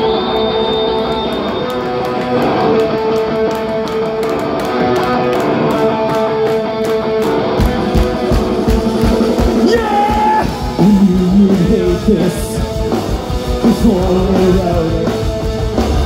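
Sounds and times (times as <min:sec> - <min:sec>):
sustained electric guitar notes: 0:00.0 - 0:16.0.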